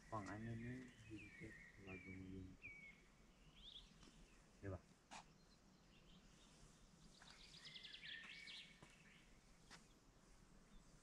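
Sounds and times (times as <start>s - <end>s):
faint bird chirps: 0.0s - 10.0s
faint songbird singing: 0.0s - 11.0s.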